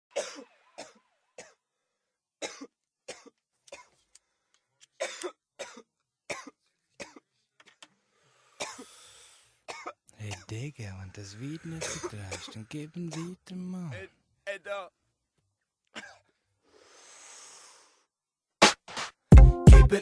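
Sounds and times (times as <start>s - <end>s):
person coughing harshly: 0.1s - 1.6s, 2.4s - 3.9s, 5.0s - 7.3s, 8.6s - 9.0s, 9.7s - 10.7s, 11.4s - 13.4s, 15.9s - 16.3s
long noisy breath: 8.0s - 9.6s, 16.6s - 18.1s.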